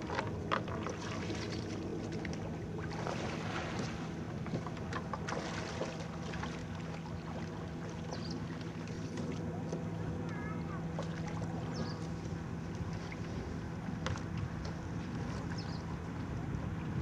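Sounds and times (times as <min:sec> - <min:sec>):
water splashing: 0:00.0 - 0:12.2
boat knocking: 0:00.0 - 0:13.2, 0:13.8 - 0:15.9
steady low drone: 0:00.0 - 0:17.0.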